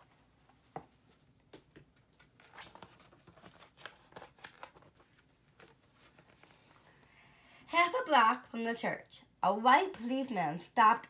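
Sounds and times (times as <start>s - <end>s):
book pages turning: 0.5s - 6.9s.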